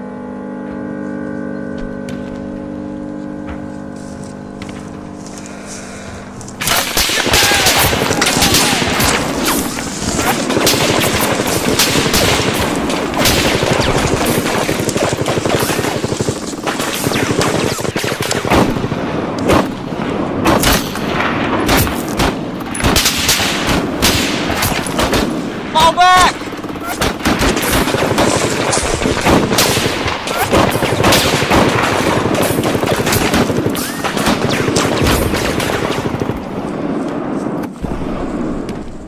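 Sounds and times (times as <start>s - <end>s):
steady low drone: 0.0s - 35.5s
machine-gun and rifle fire: 6.6s - 36.9s.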